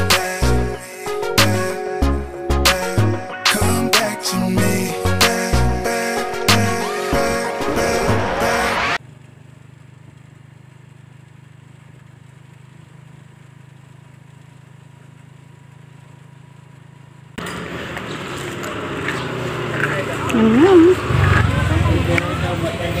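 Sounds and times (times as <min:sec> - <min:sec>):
vehicle engine hum from inside: 0:09.0 - 0:23.0
outdoor street noise: 0:13.6 - 0:23.0.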